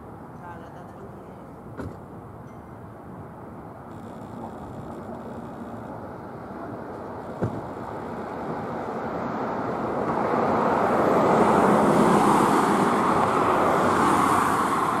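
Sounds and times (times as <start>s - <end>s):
jet engines roaring: 3.9s - 15.0s.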